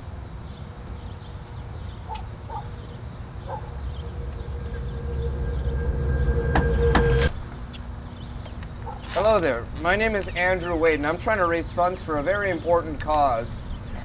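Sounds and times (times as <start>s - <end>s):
low droning tone: 3.5s - 7.4s.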